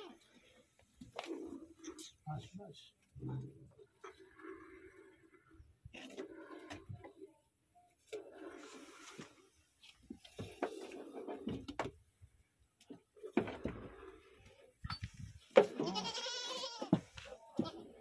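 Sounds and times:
goat bleating: 15.8s - 17.0s, 17.6s - 17.9s.

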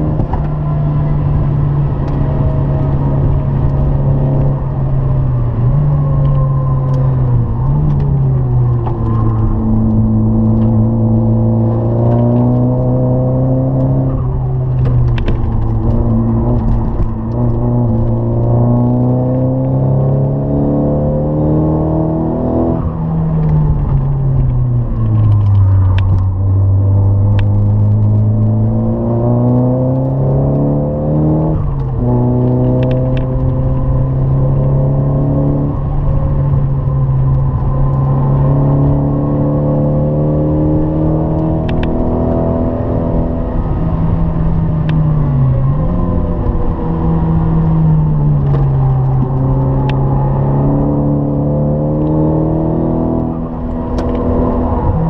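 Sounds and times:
turbocharged car engine accelerating: 0.0s - 55.0s.

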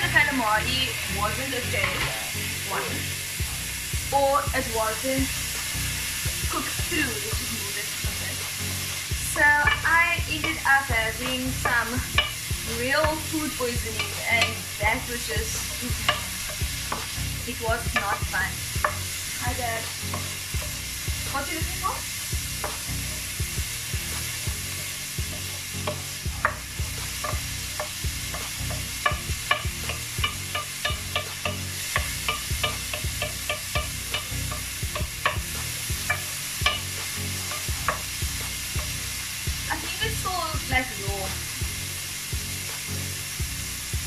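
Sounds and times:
vegetables sizzling in a pan: 0.0s - 44.0s
spatula tapping and scraping pan: 9.5s - 19.1s, 20.0s - 20.8s, 22.6s - 23.3s, 24.0s - 39.0s.

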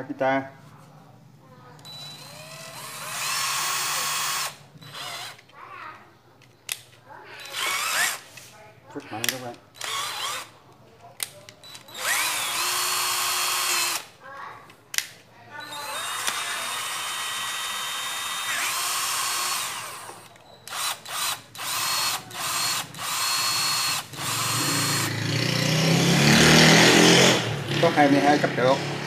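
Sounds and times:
cordless drill motor whine: 1.8s - 5.4s, 7.4s - 8.2s, 9.8s - 10.5s, 11.6s - 14.0s, 15.6s - 25.1s.

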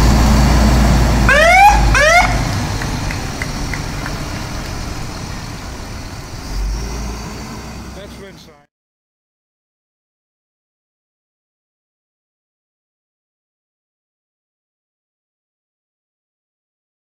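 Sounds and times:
diesel engine rumbling: 0.0s - 8.7s
fire engine siren whoops: 0.6s - 7.4s.

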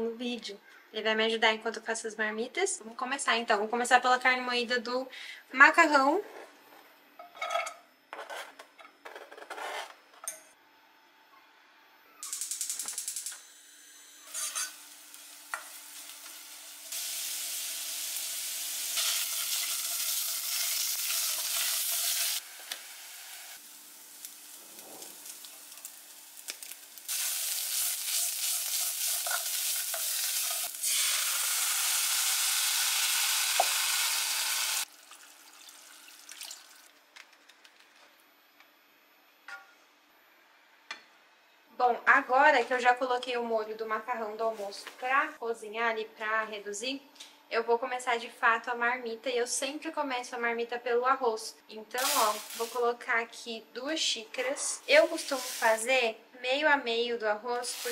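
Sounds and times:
beef sizzling in a pan: 14.2s - 36.8s, 52.0s - 52.8s, 54.8s - 55.9s, 57.6s - 57.9s.

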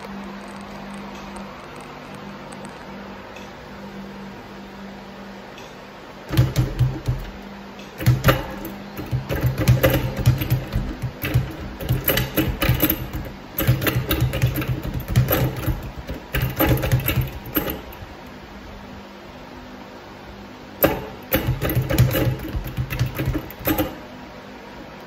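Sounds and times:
speed bag being punched: 6.3s - 7.4s, 8.0s - 18.0s, 20.8s - 24.0s.

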